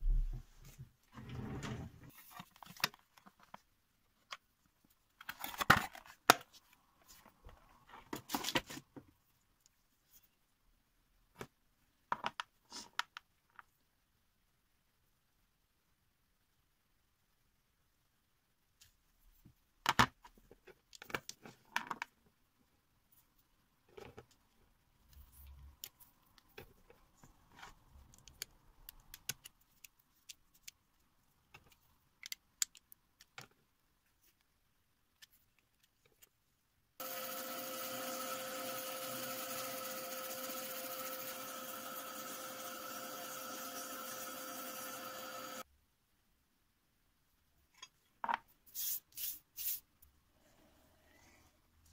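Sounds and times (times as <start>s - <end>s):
rotary tool whining: 37.0s - 45.6s.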